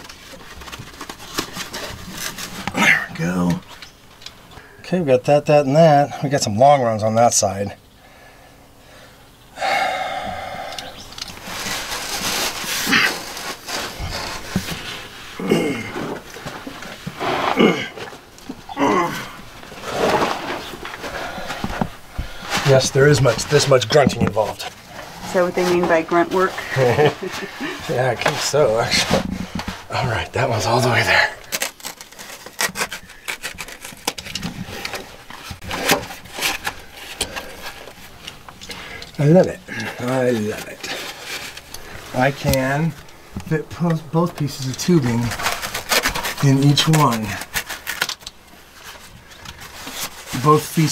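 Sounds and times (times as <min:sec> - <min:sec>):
man grunting and groaning: 0:15.4 - 0:16.2, 0:17.5 - 0:18.0, 0:18.8 - 0:19.4.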